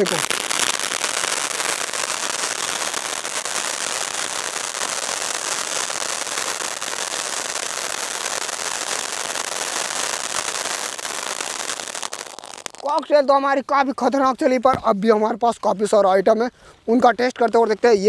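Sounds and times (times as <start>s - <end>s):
firework fountain crackling hiss: 0.0s - 14.3s.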